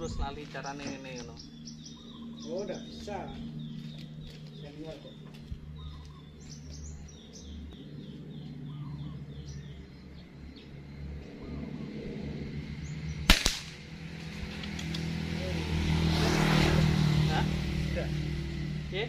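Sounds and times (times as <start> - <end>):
bird chirps: 0.0 - 13.3
air rifle shot: 13.3 - 13.9.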